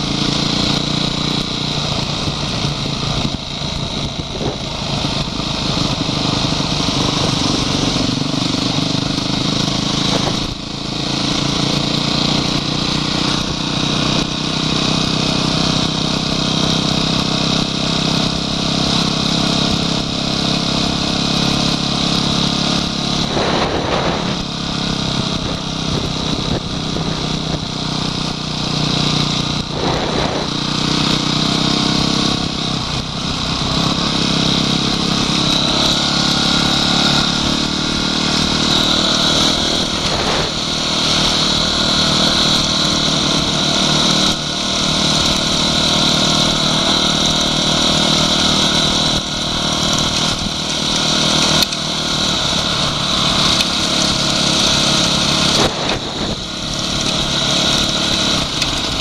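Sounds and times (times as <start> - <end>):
off-road motorcycle engines: 0.0 - 59.0
wind on microphone: 23.2 - 27.7, 29.4 - 30.8, 39.4 - 40.8, 55.6 - 56.7.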